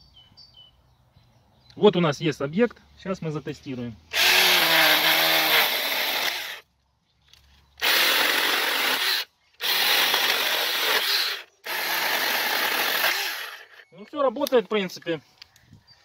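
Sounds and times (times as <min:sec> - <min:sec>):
mini chainsaw cutting branch: 0:04.1 - 0:06.6, 0:07.8 - 0:13.8.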